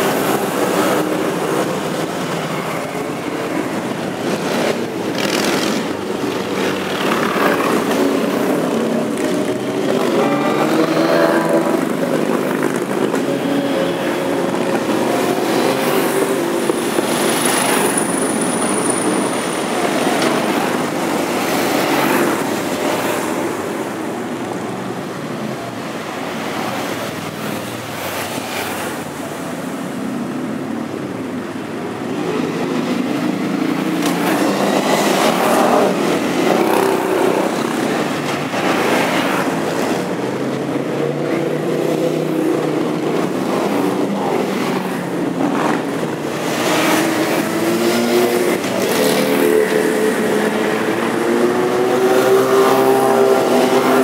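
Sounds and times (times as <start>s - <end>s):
motorcycles riding past: 32.3s - 54.0s.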